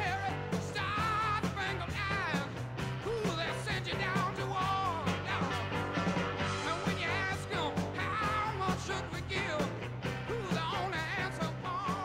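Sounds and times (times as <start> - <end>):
rock music: 0.0 - 12.0.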